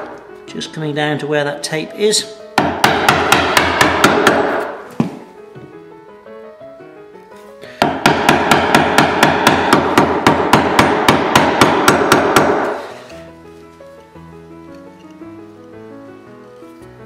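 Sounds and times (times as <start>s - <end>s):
mallet striking chisel: 2.6s - 5.2s, 7.8s - 12.9s.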